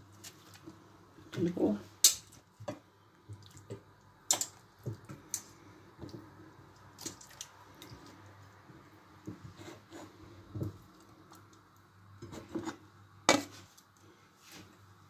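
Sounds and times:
wet squelching of meat: 6.8s - 8.4s.

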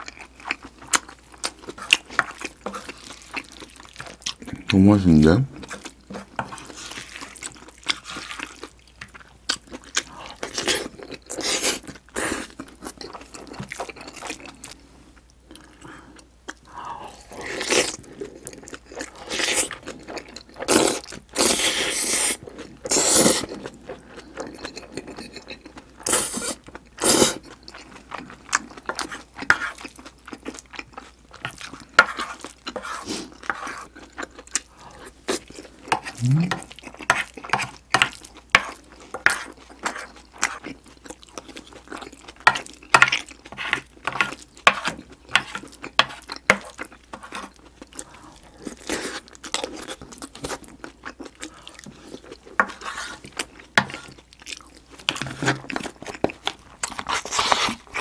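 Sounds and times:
wet chewing and mouth clicks: 22.3s - 58.0s
slurping: 36.0s - 36.8s.

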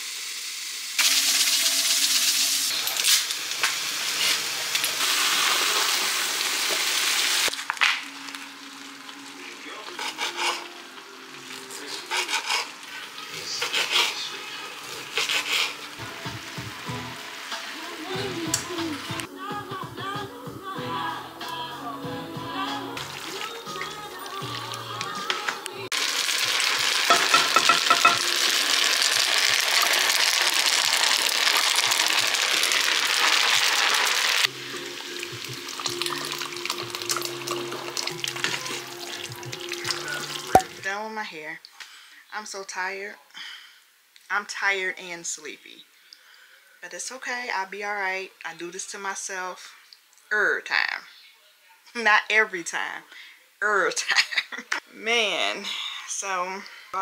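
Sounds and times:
chicken sizzling in a pan: 0.0s - 19.3s, 25.9s - 40.6s
serrated knife sawing sausage: 9.9s - 10.8s, 11.9s - 15.9s.

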